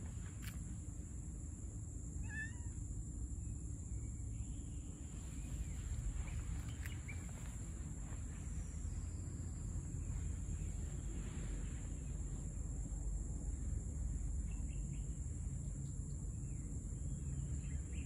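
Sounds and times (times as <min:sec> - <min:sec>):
low outdoor rumble: 0:00.0 - 0:18.0
cat meowing: 0:02.2 - 0:02.8.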